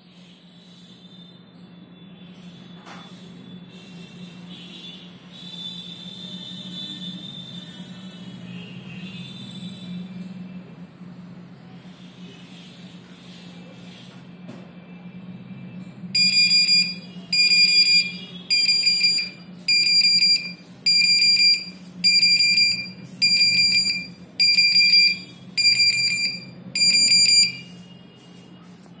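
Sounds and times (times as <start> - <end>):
smoke detector beeps: 16.2 - 27.8.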